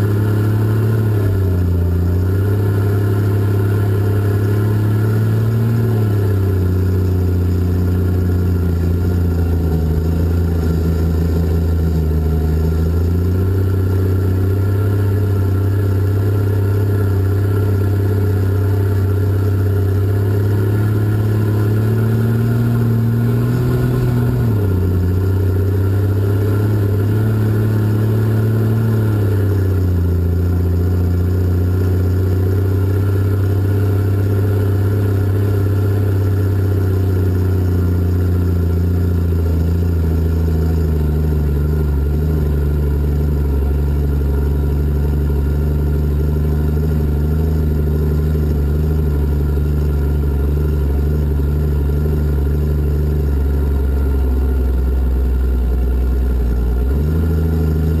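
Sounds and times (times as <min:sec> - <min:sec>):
diesel engine running under load: 0:00.0 - 0:58.0.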